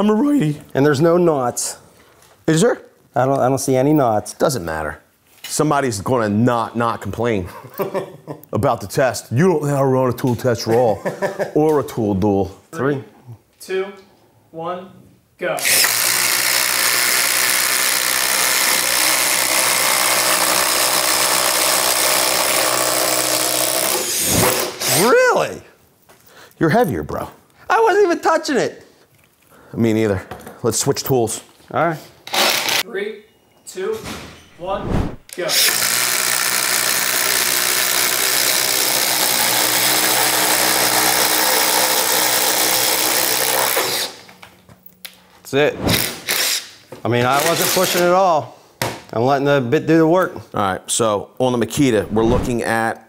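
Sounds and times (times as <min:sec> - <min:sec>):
drill bits chewing through wood: 0:15.6 - 0:25.0, 0:35.6 - 0:44.2.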